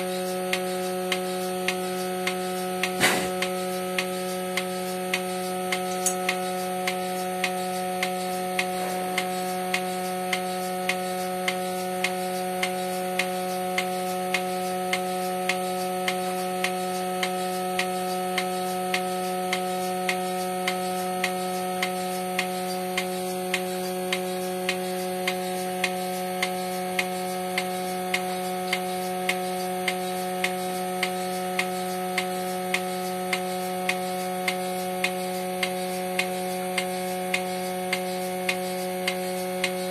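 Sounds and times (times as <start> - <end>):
milking machine humming: 0.0 - 39.9.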